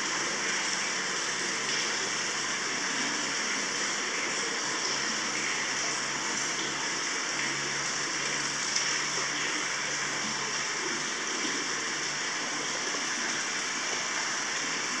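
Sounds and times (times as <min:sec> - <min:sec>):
water splashing into a bath: 0:00.0 - 0:15.0.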